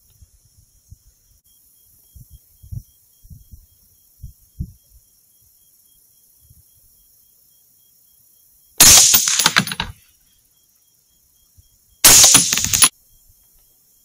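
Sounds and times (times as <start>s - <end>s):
rifle shots: 8.8s - 9.9s, 12.0s - 12.9s.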